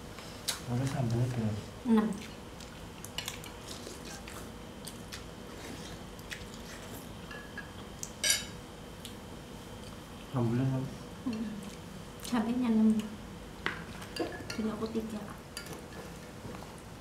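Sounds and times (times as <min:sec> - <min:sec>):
cutlery clinking on dish: 0:07.3 - 0:08.5.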